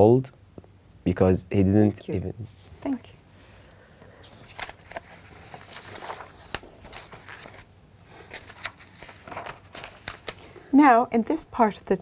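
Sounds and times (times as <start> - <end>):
papers rustling: 4.2 - 10.5.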